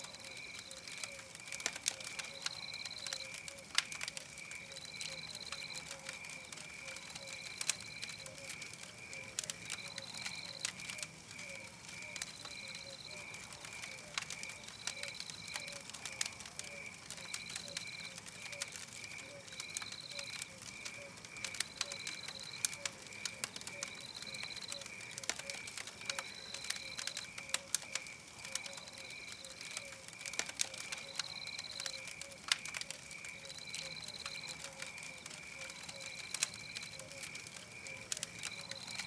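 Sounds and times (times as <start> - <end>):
campfire crackling and popping: 0.0 - 39.0.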